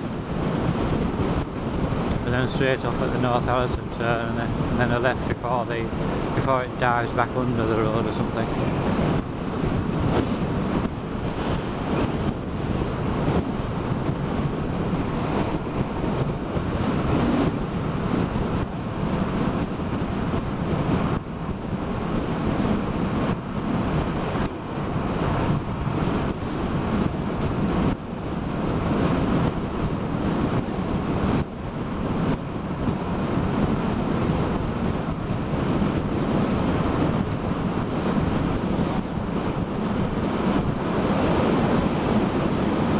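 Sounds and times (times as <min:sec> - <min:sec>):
road noise: 0:00.0 - 0:42.9
wind buffeting microphone: 0:00.0 - 0:42.9.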